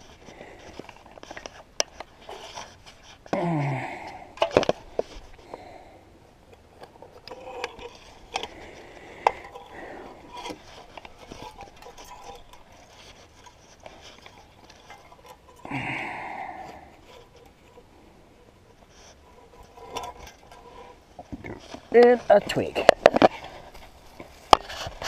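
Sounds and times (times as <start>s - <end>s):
gloves rustling and rubbing: 6.2s - 15.7s, 16.5s - 25.0s.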